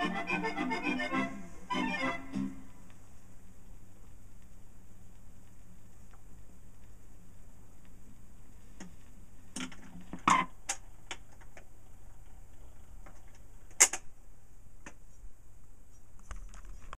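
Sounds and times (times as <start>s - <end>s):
turntable low hum: 0.0s - 16.2s.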